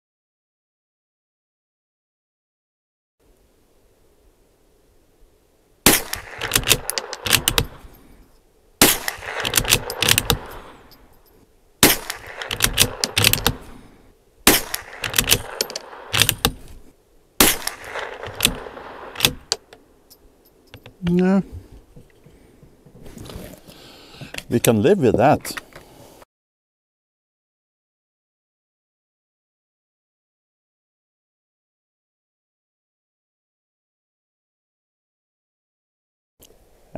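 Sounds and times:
rifle shots: 5.8s - 7.8s, 8.8s - 10.8s, 11.8s - 13.7s, 14.4s - 16.7s, 17.4s - 19.6s
rifle bolt metallic clicks: 5.9s - 7.8s, 8.8s - 10.6s, 11.2s - 13.7s, 14.5s - 16.7s, 17.4s - 21.2s.

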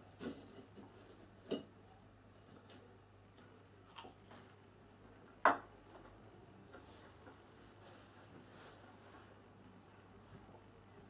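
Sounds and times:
person chewing: 3.9s - 4.4s.

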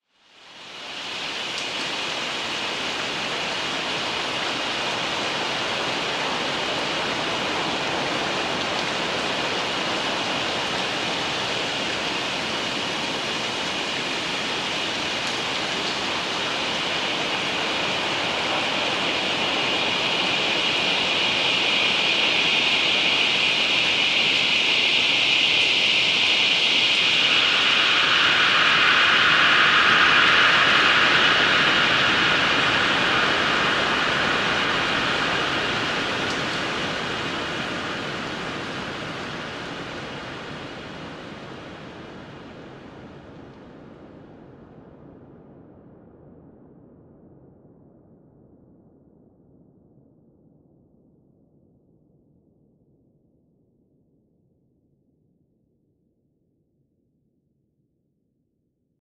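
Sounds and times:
lower band of hiss: 0.2s - 43.4s
synth rain hiss: 0.2s - 43.5s.

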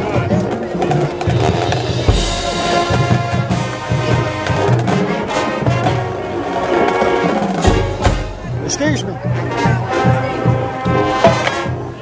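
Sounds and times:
marching band brass chords: 0.0s - 12.0s
loud percussion hit: 7.6s - 8.7s.

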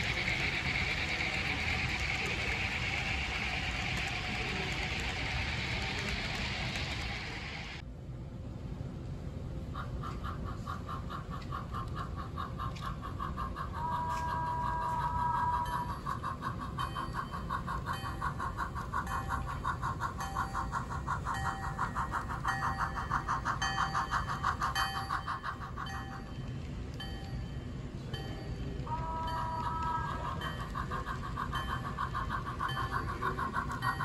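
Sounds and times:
steam chuffs from small speaker: 0.0s - 7.8s
train whistle: 13.7s - 16.0s, 28.8s - 30.6s.

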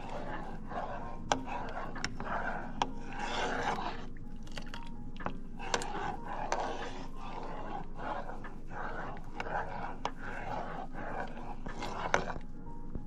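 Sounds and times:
spoon stirring milk in a pot: 0.0s - 13.0s.

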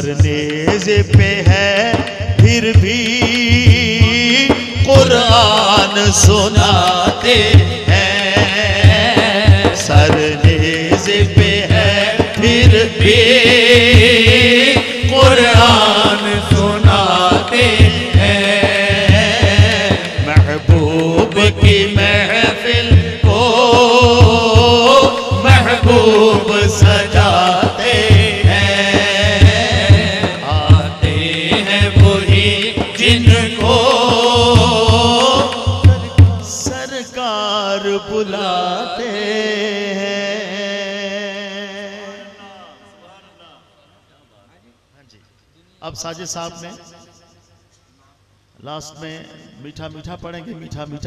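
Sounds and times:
steady low beat: 0.0s - 36.9s
person singing devotional song: 0.0s - 43.8s.

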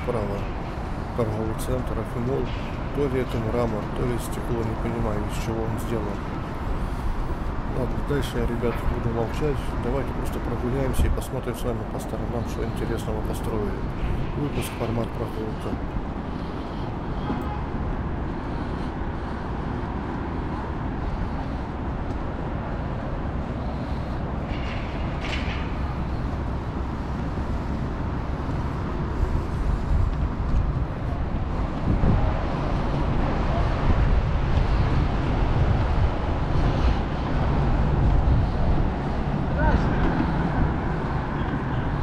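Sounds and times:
road traffic: 0.0s - 42.0s.

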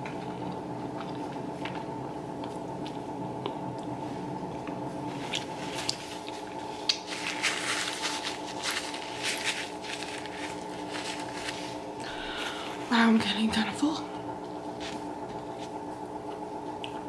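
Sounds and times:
steady low hum: 0.0s - 17.0s
paper napkin rustling: 5.1s - 12.7s, 14.6s - 15.9s.

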